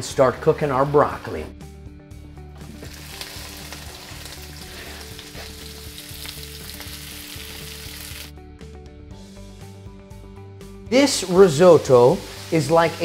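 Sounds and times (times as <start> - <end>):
vegetables sizzling in oil: 2.6 - 8.3, 11.1 - 13.0.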